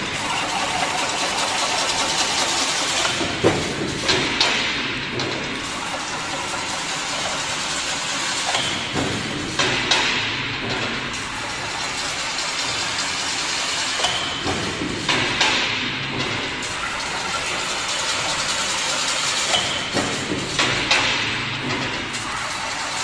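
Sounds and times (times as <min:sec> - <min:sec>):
fence weaving machine clattering: 0:00.1 - 0:10.9.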